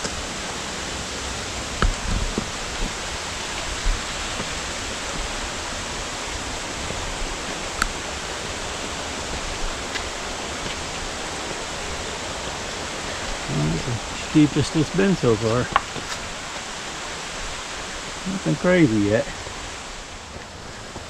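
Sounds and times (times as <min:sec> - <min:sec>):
brook rushing over rocks: 0:01.4 - 0:21.0.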